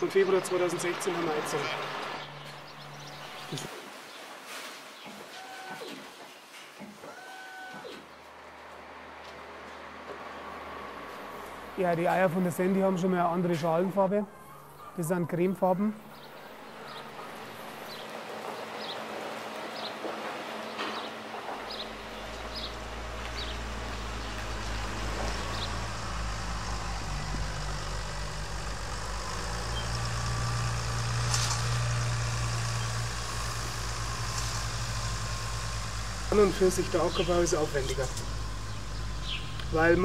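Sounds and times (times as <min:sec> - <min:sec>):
tractor diesel engine running: 0:00.0 - 0:03.7, 0:16.0 - 0:40.0.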